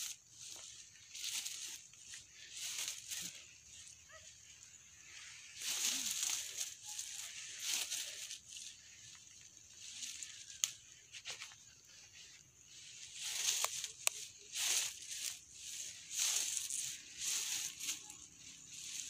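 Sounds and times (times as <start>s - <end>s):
dry leaves rustling: 0.0s - 19.0s
twigs snapping: 10.4s - 10.9s, 13.3s - 14.3s.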